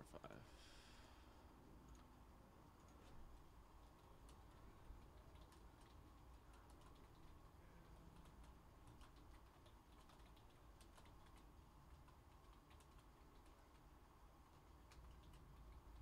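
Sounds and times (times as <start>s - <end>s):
low steady hum: 0.0s - 16.0s
computer keyboard typing: 3.8s - 16.0s.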